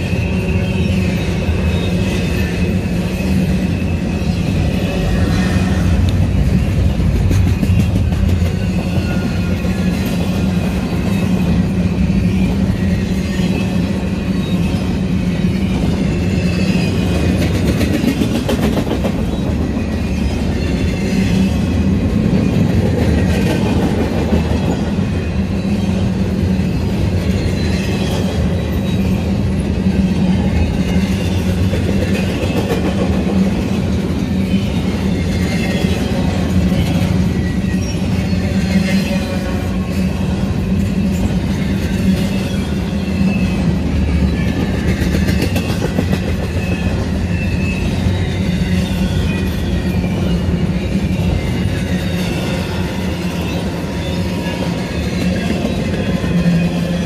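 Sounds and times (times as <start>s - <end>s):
freight train rolling past: 0.0s - 57.0s
train wheels clacking over rail joints: 5.2s - 13.9s, 16.6s - 21.4s, 30.3s - 38.1s, 43.9s - 48.0s.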